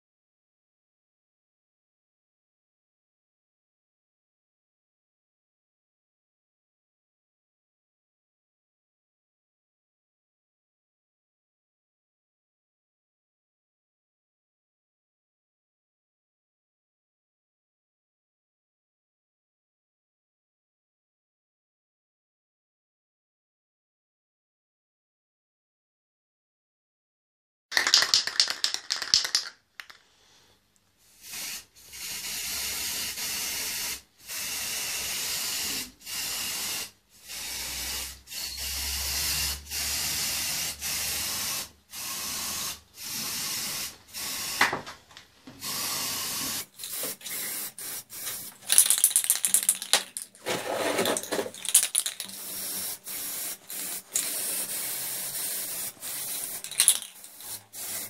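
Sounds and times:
spray paint can hissing: 0:27.8 - 0:30.0, 0:31.2 - 0:44.8, 0:45.6 - 0:58.0.

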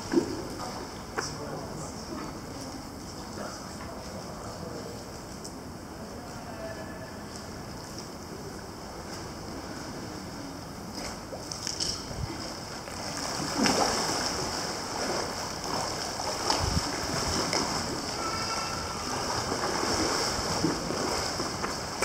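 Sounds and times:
water lapping and splashing: 0:00.0 - 0:05.2, 0:07.2 - 0:22.0
loud splashes: 0:12.9 - 0:22.0.

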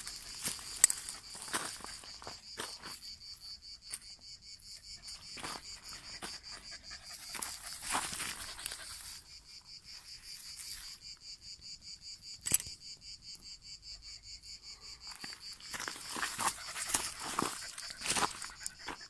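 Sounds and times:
dry grass rustling: 0:00.0 - 0:02.3
insect chirping: 0:00.0 - 0:19.0
sharp click: 0:12.4 - 0:12.8.

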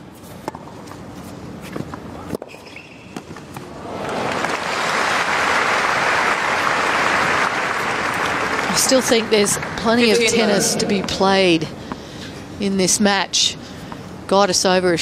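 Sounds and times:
crowd applause: 0:03.9 - 0:08.8.

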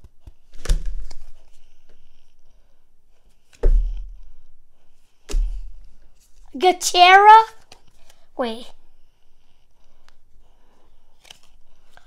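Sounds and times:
dull thumps of trading cards: 0:03.5 - 0:04.2, 0:05.3 - 0:05.7.

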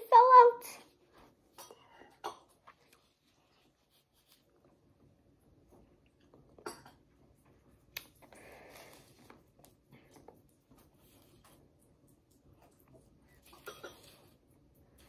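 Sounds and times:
soft rustle: 0:02.6 - 0:06.0.

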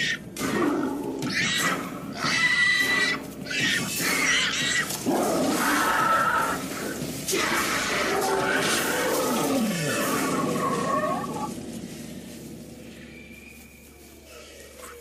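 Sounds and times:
loud animal calls: 0:00.0 - 0:11.6.

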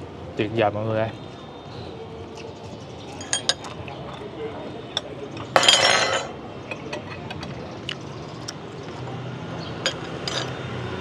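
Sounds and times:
tableware clicking and clinking: 0:03.1 - 0:04.3, 0:04.9 - 0:07.6, 0:09.8 - 0:10.6.

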